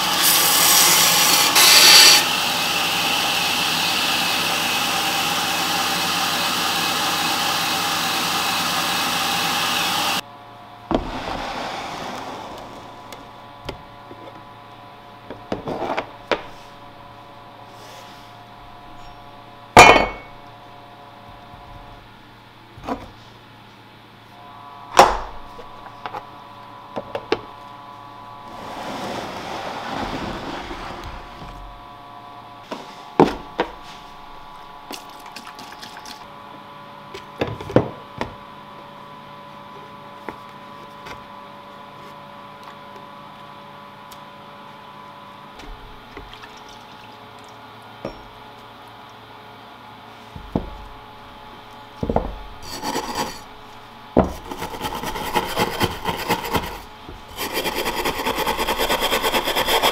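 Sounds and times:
steady hum: 10.2s - 37.0s
wire brush scrubbing metal: 52.6s - 53.5s, 54.4s - 59.9s.

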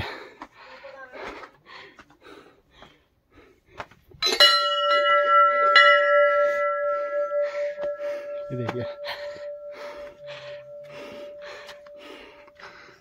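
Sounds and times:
temple bell ringing: 4.2s - 13.0s.

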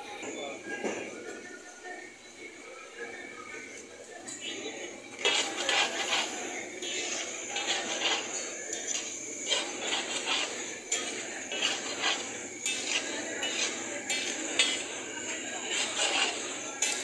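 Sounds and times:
metal spatula scraping iron griddle: 4.4s - 17.0s.

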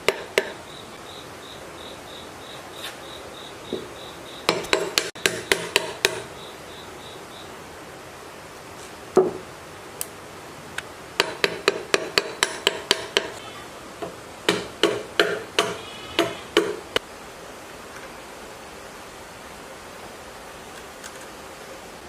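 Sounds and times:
hammer tapping metal: 0.0s - 0.6s, 4.5s - 6.3s, 11.2s - 13.4s, 14.0s - 17.0s.

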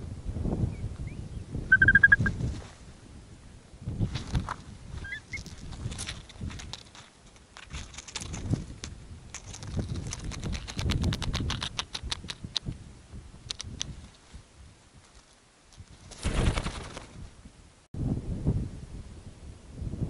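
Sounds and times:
bird ticking calls: 1.0s - 2.3s
bird wingbeats: 14.9s - 17.4s.

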